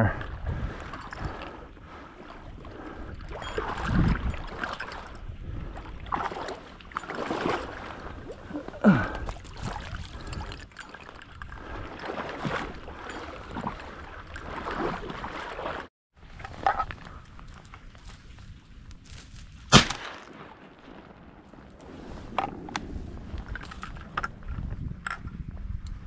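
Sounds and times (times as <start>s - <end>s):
water sloshing and splashing: 0.0s - 20.0s.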